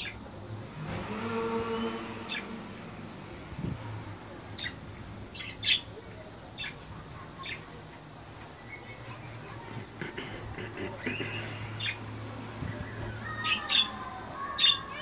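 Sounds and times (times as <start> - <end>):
budgerigars chirping: 2.3 - 2.5, 4.6 - 5.9, 6.6 - 6.8, 11.1 - 12.0, 12.8 - 15.0.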